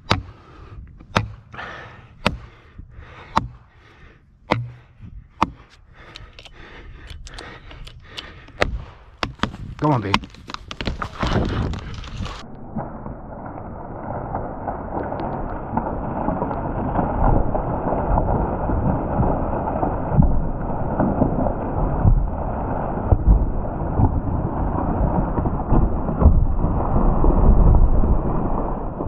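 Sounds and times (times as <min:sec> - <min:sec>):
steady low rumble: 0:00.0 - 0:29.0
tree hinge wood cracking: 0:03.3 - 0:12.4
tree trunk crashing to ground: 0:09.4 - 0:29.0.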